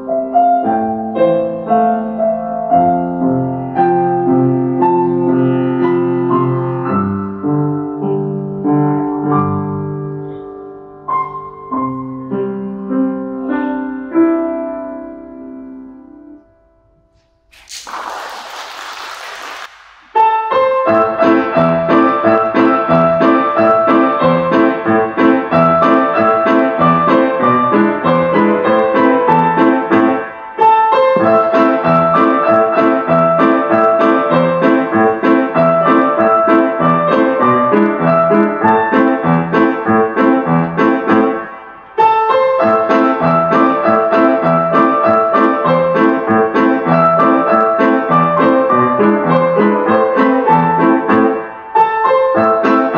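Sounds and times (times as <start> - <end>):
grand piano played four-hands: 0.0 - 17.2, 20.1 - 52.9
audience applause: 17.6 - 20.2.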